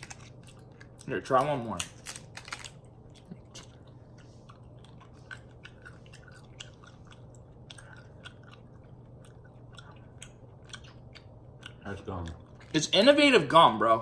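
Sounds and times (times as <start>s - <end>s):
chewing gum: 2.8s - 12.8s.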